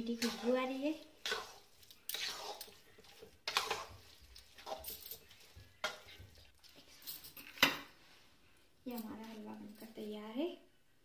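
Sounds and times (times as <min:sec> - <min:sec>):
wooden spatula scraping pan: 0:00.0 - 0:08.0.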